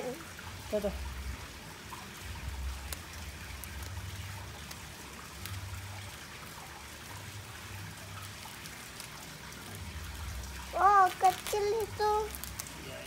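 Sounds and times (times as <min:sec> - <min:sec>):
water trickling into pond: 0:00.0 - 0:13.0
scissors cutting plastic: 0:10.9 - 0:12.8.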